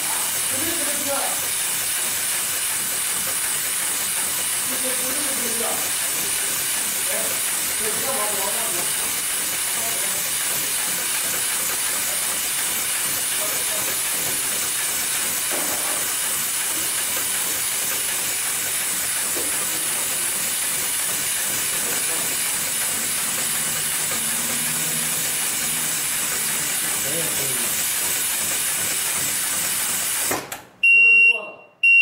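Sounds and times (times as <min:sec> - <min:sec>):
sewing machine stitching: 0:00.0 - 0:30.7.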